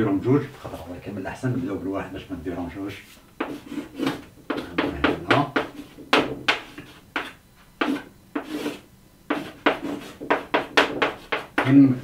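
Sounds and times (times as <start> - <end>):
chalk writing on chalkboard: 3.0 - 11.8.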